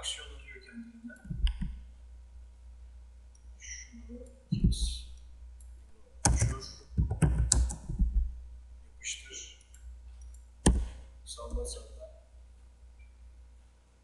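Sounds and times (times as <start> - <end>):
keyboard keystrokes: 6.2 - 8.2.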